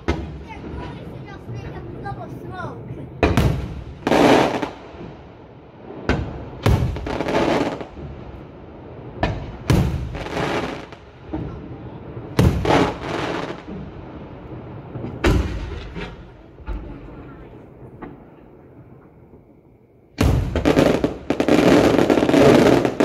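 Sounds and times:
firework shells bursting: 14.9s - 17.1s, 20.2s - 23.0s.

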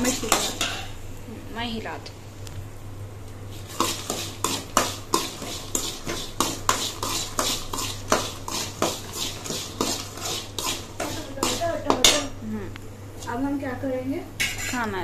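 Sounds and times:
spoon scraping metal pan: 0.0s - 1.0s, 3.6s - 12.3s, 14.4s - 14.8s.

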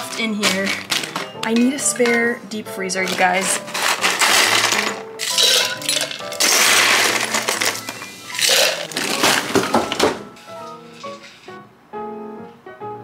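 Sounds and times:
ice cubes clinking into tumbler: 0.0s - 2.2s, 3.1s - 10.1s
background music: 0.0s - 13.0s.

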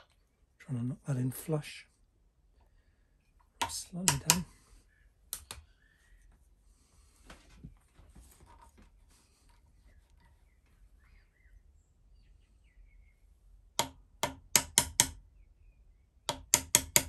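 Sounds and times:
hammer tapping metal punch: 3.6s - 4.5s, 13.8s - 15.2s, 16.3s - 17.0s.

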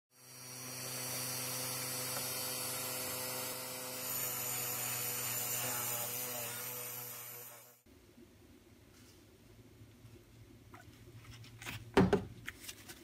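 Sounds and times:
rotary tool motor hum: 0.1s - 7.8s.

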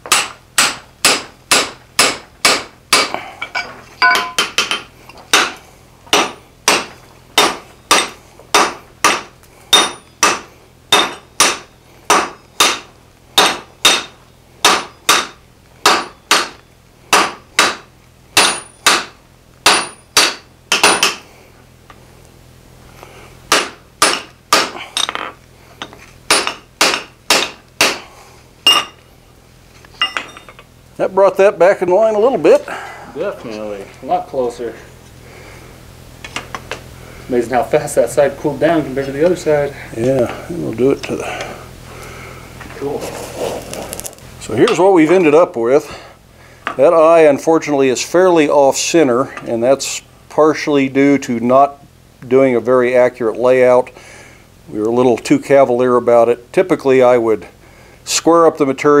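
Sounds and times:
hammers striking hot steel on anvil: 0.0s - 21.3s, 23.5s - 29.0s, 30.0s - 30.7s, 44.6s - 45.2s.

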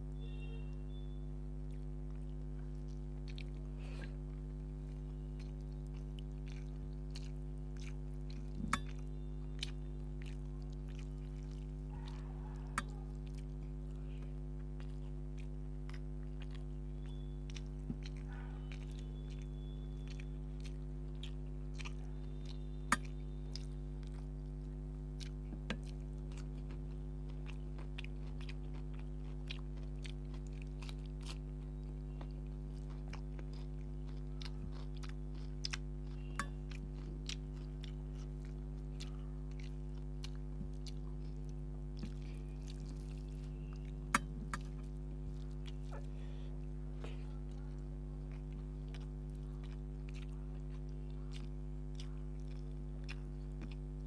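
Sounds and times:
steady low hum: 0.0s - 54.0s
person chewing: 0.1s - 54.0s
wet mouth clicks and smacks: 18.8s - 24.3s, 25.2s - 26.7s, 37.4s - 46.1s.

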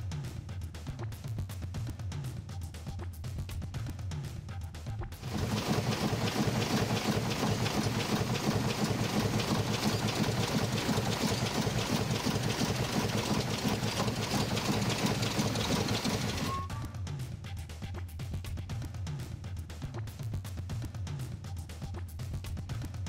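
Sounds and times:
steam engine beat: 5.2s - 16.9s.

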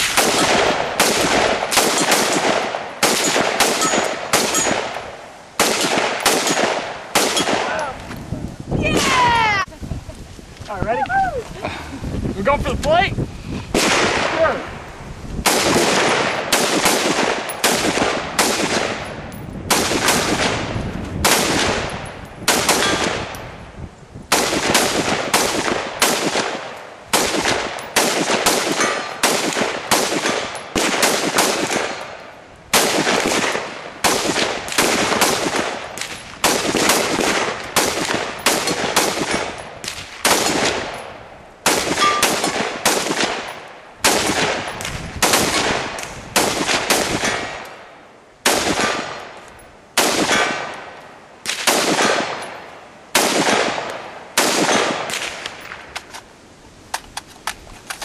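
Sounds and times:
semi-automatic gunshots with echo: 0.0s - 7.8s, 15.4s - 19.1s, 19.7s - 23.3s, 24.3s - 47.8s.

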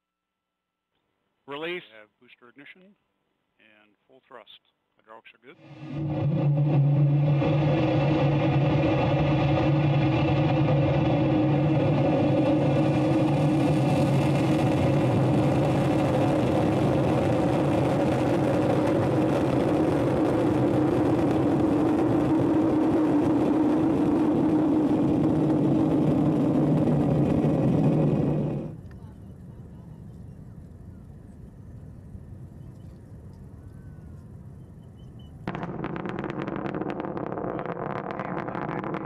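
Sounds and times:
rocket engine rumble: 5.6s - 32.1s, 35.4s - 39.0s.

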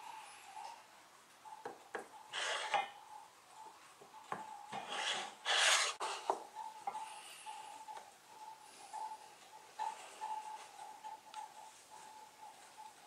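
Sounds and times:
wood block rubbing on tabletop: 2.0s - 2.9s, 4.7s - 6.4s.

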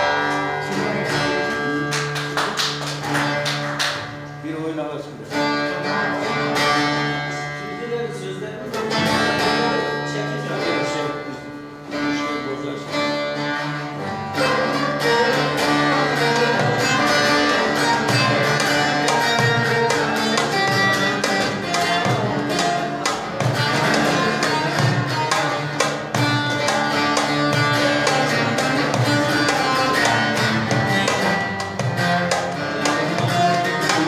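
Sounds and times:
plucked long-necked lute folk music: 0.0s - 34.0s.

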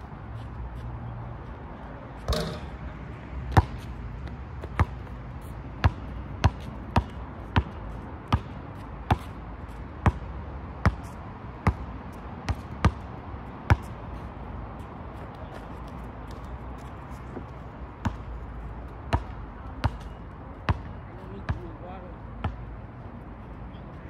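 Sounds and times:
basketball bouncing on asphalt: 2.2s - 21.8s, 22.4s - 22.7s
ball rattling on hoop: 2.3s - 2.7s.

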